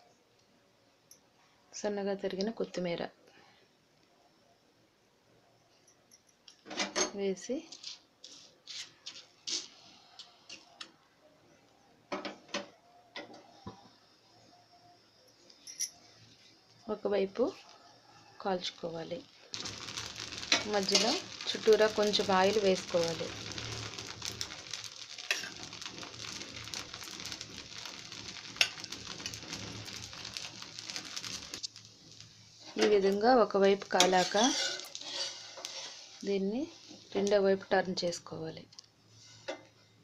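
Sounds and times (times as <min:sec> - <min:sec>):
batter sizzling in oil: 0:07.7 - 0:10.8, 0:15.8 - 0:39.7
metal spatula scraping griddle: 0:08.2 - 0:10.6, 0:19.6 - 0:31.7, 0:33.7 - 0:36.2, 0:39.1 - 0:39.7.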